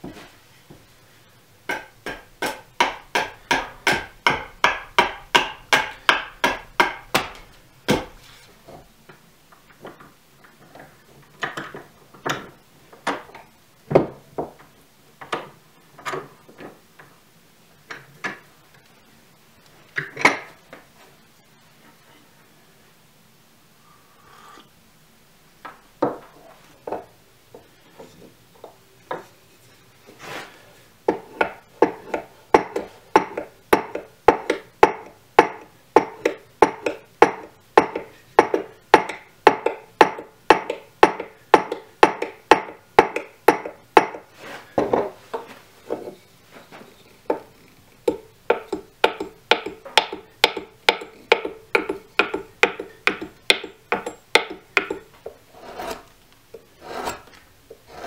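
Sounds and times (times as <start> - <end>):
hone scraping along steel blade: 55.5 - 56.1, 56.8 - 58.0.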